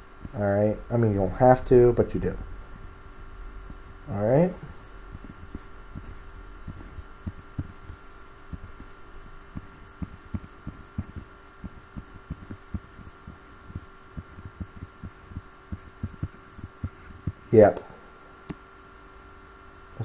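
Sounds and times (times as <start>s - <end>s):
faint electrical hum: 0.0s - 20.0s
stylus tapping on drawing tablet: 5.1s - 17.4s.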